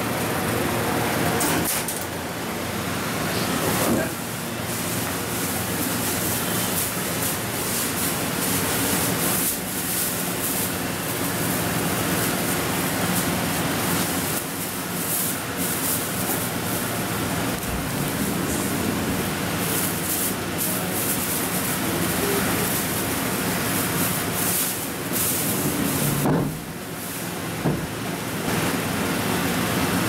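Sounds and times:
steady rushing noise: 16.7 - 21.9.

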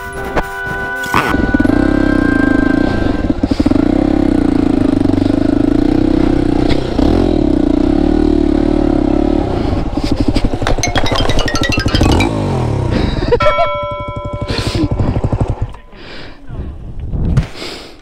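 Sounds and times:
motorcycle engine running hard: 1.2 - 10.8, 12.2 - 16.1.

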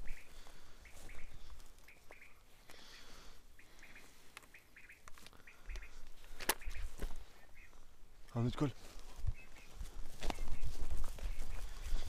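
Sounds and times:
quail chirping: 0.0 - 8.5, 9.1 - 12.0
soft clicks in grass: 3.7 - 7.2, 8.3 - 12.0.

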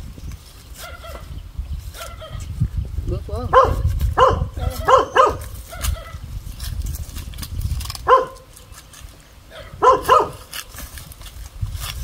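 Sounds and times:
dog barking: 3.5 - 6.2, 8.0 - 8.5, 9.5 - 10.5.

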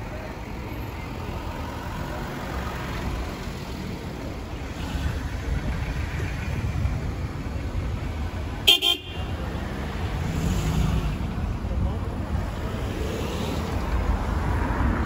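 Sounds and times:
road traffic rumbling: 0.0 - 15.0
car horn toot: 8.7 - 9.3.

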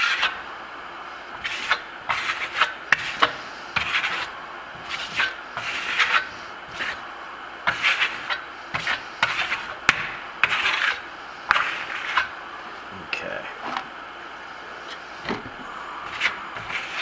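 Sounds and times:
trowel scraping plaster: 0.0 - 0.4, 1.4 - 7.0, 7.7 - 9.8, 10.4 - 12.3, 16.0 - 17.0.

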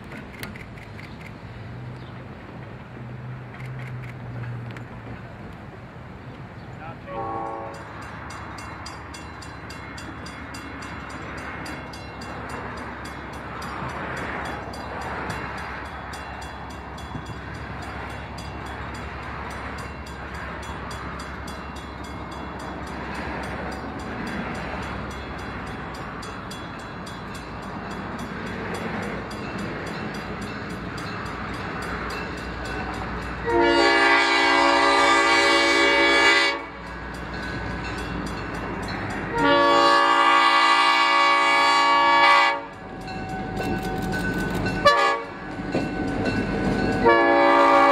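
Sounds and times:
train rumbling past: 0.0 - 47.9
locomotive horn: 7.0 - 8.0, 33.4 - 36.8, 39.2 - 43.7, 44.7 - 45.4, 47.0 - 47.9.

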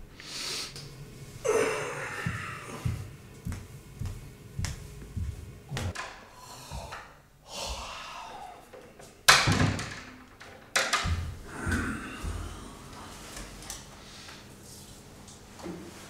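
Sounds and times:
door banging shut: 9.3 - 10.2.

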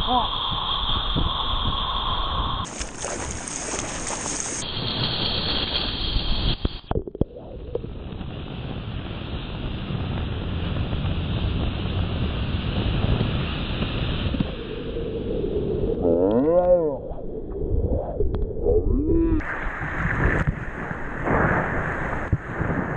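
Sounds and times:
sea water rushing and splashing: 2.6 - 4.6, 19.4 - 22.9
wind buffeting microphone: 7.4 - 22.9.

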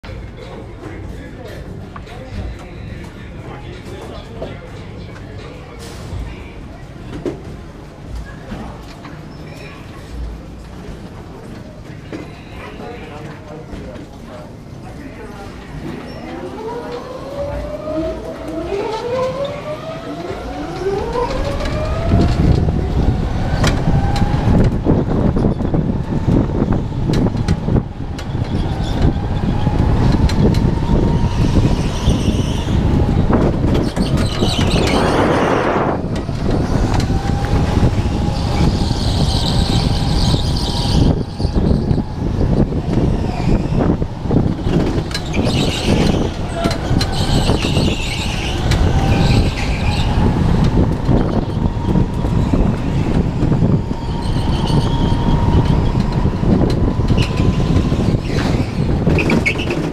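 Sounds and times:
wind rumble on microphone: 15.8 - 59.9
electric go-kart motors whining: 16.6 - 59.9
rush of air: 34.4 - 47.8.

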